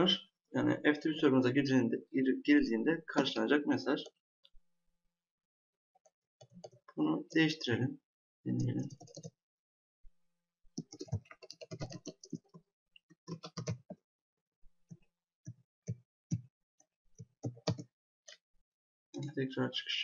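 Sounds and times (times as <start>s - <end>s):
computer keyboard typing: 8.8s - 9.3s, 10.8s - 12.6s, 13.2s - 14.0s, 17.2s - 17.9s.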